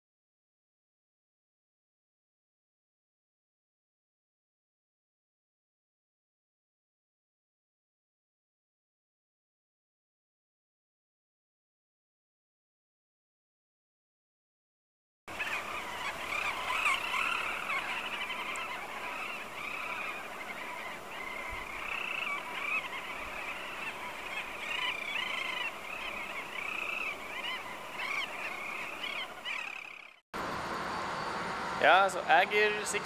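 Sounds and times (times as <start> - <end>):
flock of birds honking: 15.3 - 30.2.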